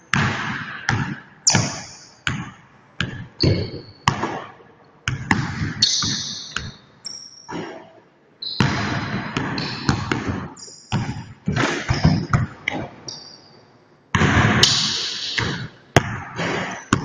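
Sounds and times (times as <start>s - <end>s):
basketball bouncing on hardwood: 0.1s - 6.8s, 8.6s - 13.0s, 14.1s - 14.8s, 15.4s - 17.0s
sneaker squeaks: 1.4s - 2.3s, 3.1s - 4.4s, 5.1s - 13.8s, 16.5s - 17.0s.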